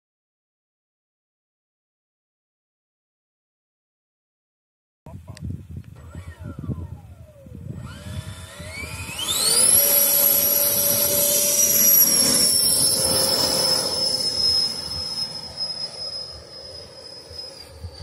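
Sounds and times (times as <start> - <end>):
model jet engine whine: 6.0 - 18.0.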